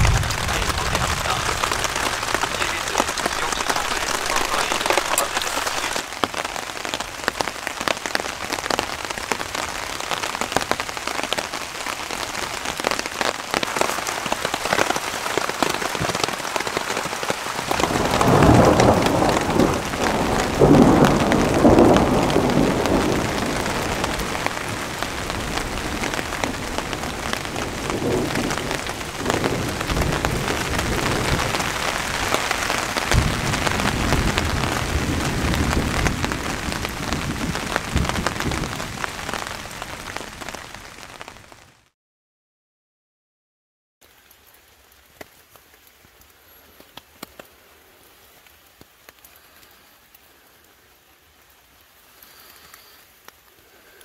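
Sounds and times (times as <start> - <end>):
thunder rolling: 0.0 - 6.0, 17.7 - 39.5
steady rain: 0.0 - 42.0, 44.0 - 54.0.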